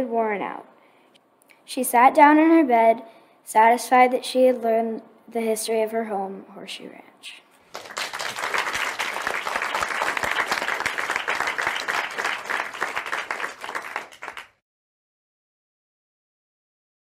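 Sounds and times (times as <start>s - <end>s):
crowd applause: 7.7s - 14.6s.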